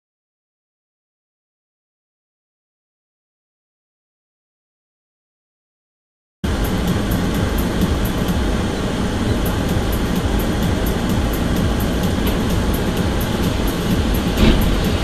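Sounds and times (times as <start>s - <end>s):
car cabin road noise: 6.4s - 15.0s
thud: 14.3s - 14.9s.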